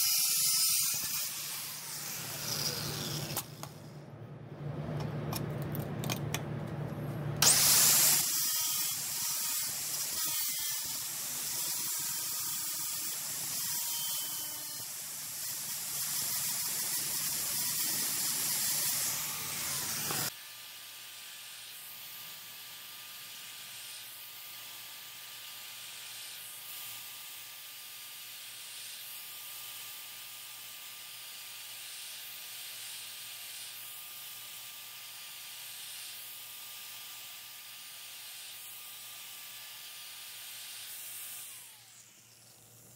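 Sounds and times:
abrasive tool hissing on steel: 0.0 - 3.6, 7.4 - 20.4.

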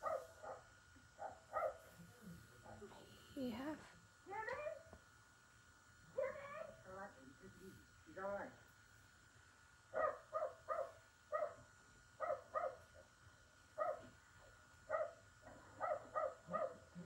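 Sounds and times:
dog barking: 0.0 - 1.9, 9.9 - 11.6, 12.2 - 13.0, 13.8 - 14.1, 14.9 - 17.0.

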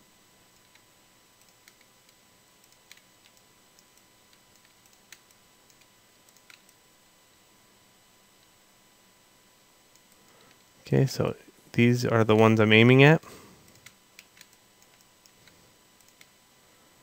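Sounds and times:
computer mouse and keyboard clicks: 1.4 - 6.8, 13.6 - 16.4.

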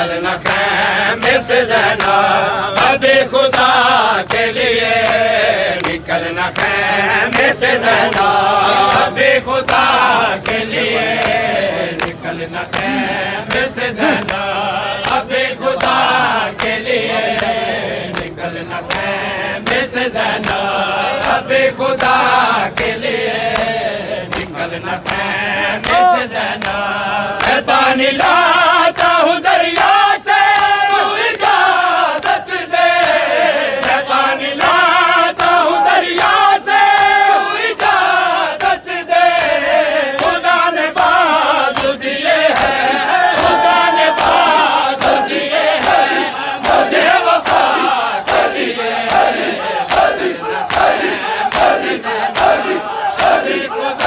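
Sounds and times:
men chanting in unison: 0.0 - 54.0.

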